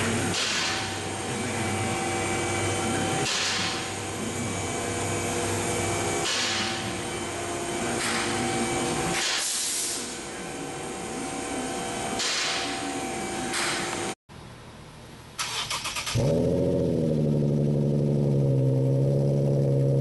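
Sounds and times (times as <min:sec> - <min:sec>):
car engine idling with open exhaust: 0:00.0 - 0:09.0, 0:16.2 - 0:20.0.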